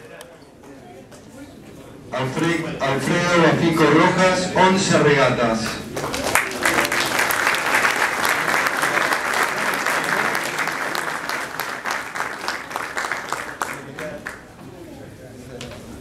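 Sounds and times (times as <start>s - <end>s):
audience applauding: 5.9s - 14.5s.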